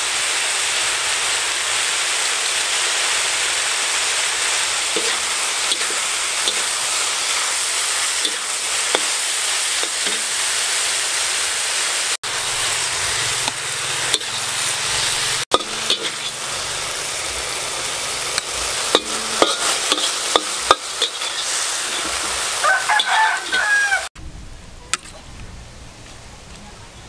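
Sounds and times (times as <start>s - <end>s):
meat and beans sizzling in a wok: 0.0s - 24.1s
metal spatula scraping a pan: 4.9s - 7.4s, 8.1s - 10.4s, 13.2s - 17.1s, 18.3s - 23.9s
chicken calling: 22.0s - 24.1s.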